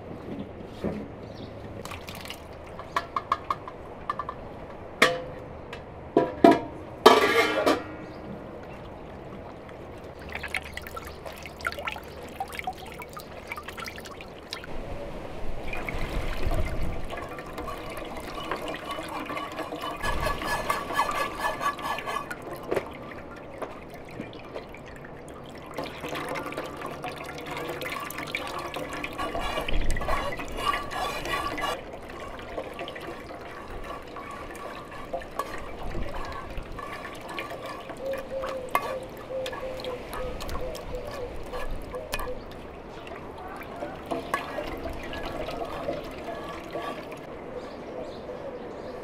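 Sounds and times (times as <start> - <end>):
juice trickling through sieve: 1.7 - 3.0, 7.2 - 47.3
juice pouring into metal pot: 1.8 - 2.8, 8.8 - 14.7, 15.6 - 47.3.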